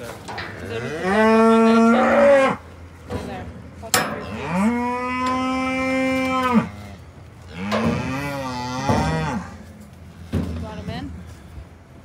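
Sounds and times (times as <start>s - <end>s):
cattle mooing: 0.5s - 2.6s, 4.2s - 9.7s.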